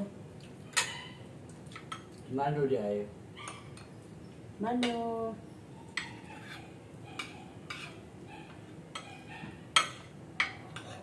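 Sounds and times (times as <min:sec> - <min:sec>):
cutlery clinking on plates: 0:00.7 - 0:01.1, 0:05.9 - 0:08.0, 0:08.9 - 0:11.0.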